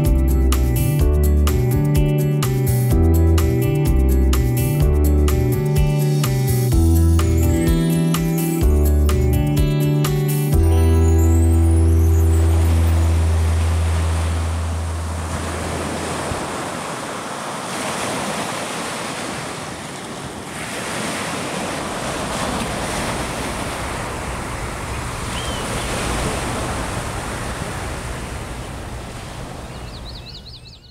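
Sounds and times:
background music: 0:00.0 - 0:15.4
ocean surf on sandy beach: 0:11.2 - 0:30.5.

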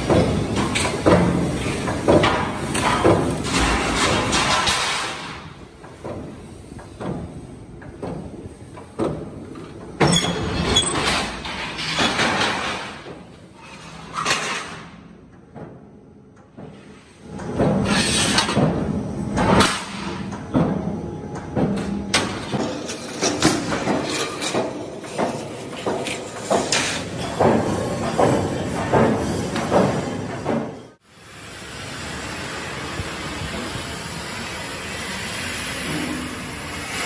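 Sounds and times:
metal sliding scrapes: 0:10.1 - 0:14.9, 0:16.8 - 0:18.7, 0:22.3 - 0:30.4.

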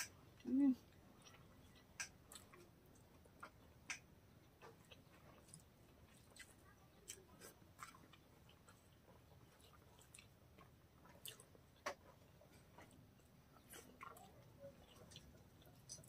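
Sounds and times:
wet chewing clicks: 0:00.0 - 0:16.0.

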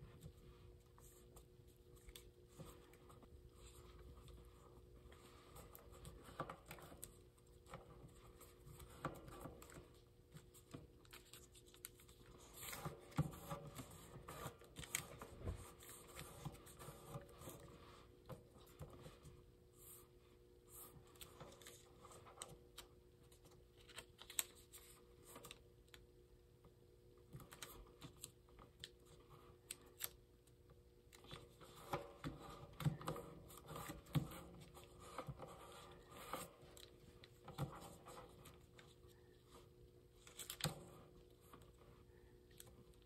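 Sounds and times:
paper being folded and creased: 0:00.0 - 0:17.8, 0:20.8 - 0:25.6, 0:40.2 - 0:43.0.

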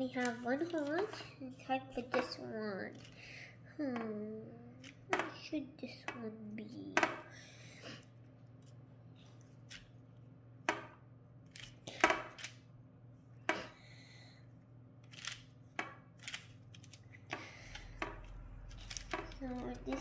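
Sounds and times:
baking parchment crinkling: 0:00.0 - 0:03.3, 0:15.0 - 0:20.0
faint low hum: 0:00.0 - 0:20.0.

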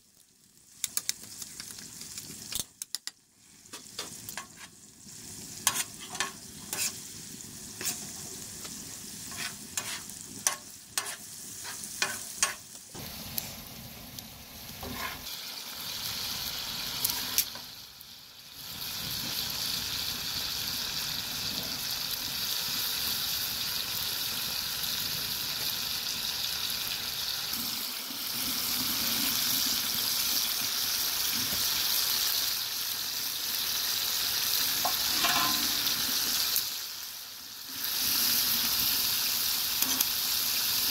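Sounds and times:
food frying sizzle: 0:00.0 - 0:40.9
utensil scraping against pot: 0:05.6 - 0:07.0, 0:07.8 - 0:08.1, 0:09.3 - 0:12.6, 0:14.8 - 0:15.3, 0:34.8 - 0:35.9.

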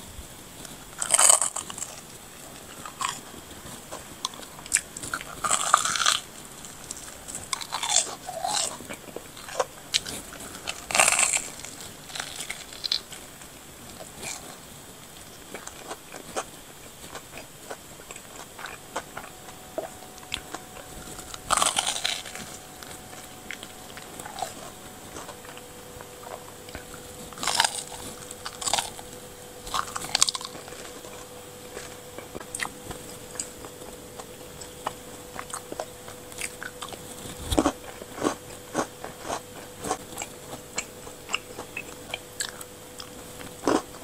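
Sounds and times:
crunchy chewing: 0:00.5 - 0:44.0.

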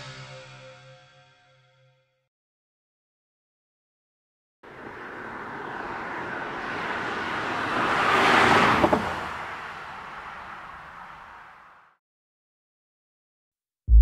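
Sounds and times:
van driving past: 0:04.7 - 0:11.8.

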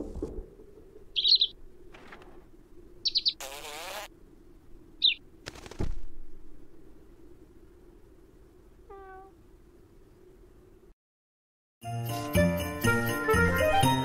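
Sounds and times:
rustling: 0:00.0 - 0:02.6
small bird chirping: 0:01.1 - 0:01.6, 0:03.0 - 0:04.1, 0:05.0 - 0:05.2, 0:08.9 - 0:09.4.

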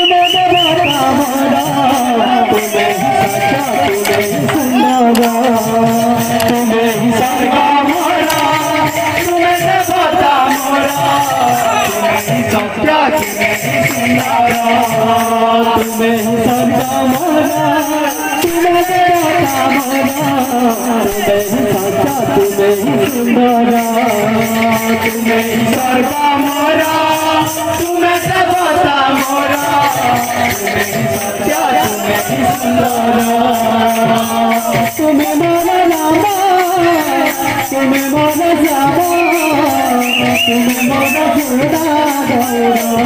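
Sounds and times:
jingling percussion: 0:00.0 - 0:43.0
steady drumming: 0:00.0 - 0:43.0.

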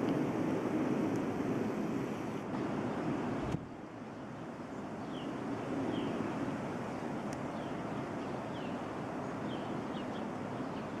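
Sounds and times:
blizzard wind blowing: 0:00.0 - 0:11.0
bird chirping: 0:04.7 - 0:06.2, 0:06.9 - 0:11.0.

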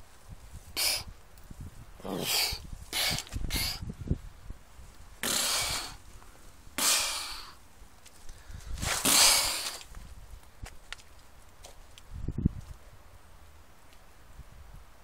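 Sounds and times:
stag hissing breaths: 0:00.8 - 0:01.1, 0:02.0 - 0:03.8, 0:05.2 - 0:07.6, 0:08.3 - 0:09.8.

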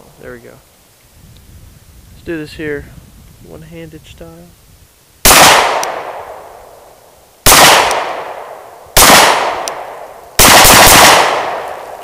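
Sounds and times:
pistol shots with echo: 0:05.2 - 0:06.4, 0:07.4 - 0:12.0.

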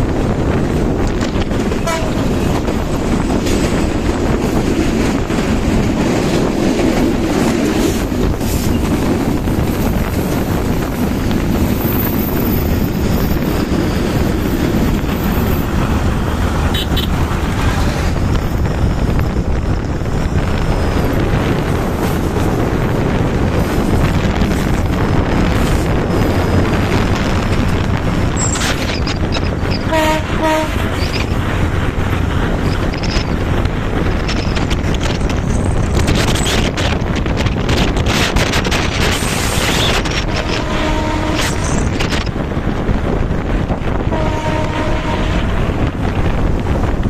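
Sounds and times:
train running: 0:00.0 - 0:47.0
wind rushing over microphone: 0:00.0 - 0:47.0
horn toots: 0:01.8 - 0:02.3, 0:16.6 - 0:17.2, 0:29.8 - 0:31.2, 0:40.2 - 0:41.8, 0:44.1 - 0:45.8.

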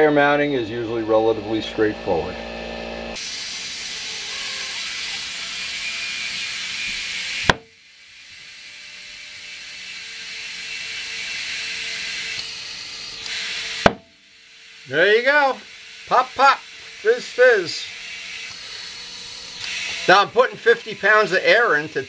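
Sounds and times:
compressed air hissing: 0:14.8 - 0:22.0.

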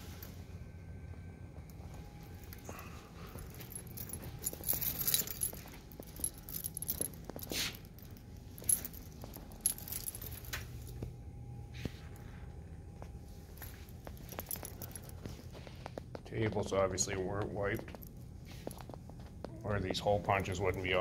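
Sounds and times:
faint steady hum: 0:00.0 - 0:21.0
soft footsteps: 0:01.0 - 0:21.0
keys jingling: 0:01.8 - 0:11.1, 0:13.3 - 0:15.7, 0:17.2 - 0:19.3, 0:20.3 - 0:21.0.

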